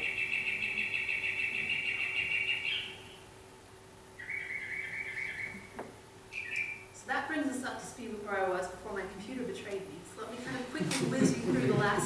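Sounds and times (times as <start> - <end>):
mockingbird song over speakers: 0.0 - 3.3, 4.2 - 7.0.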